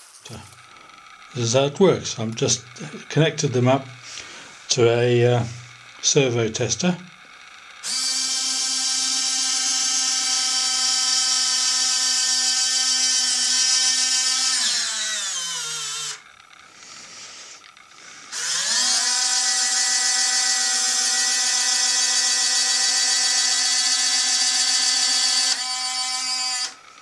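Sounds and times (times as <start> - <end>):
small geared motors whining: 0.0 - 27.0.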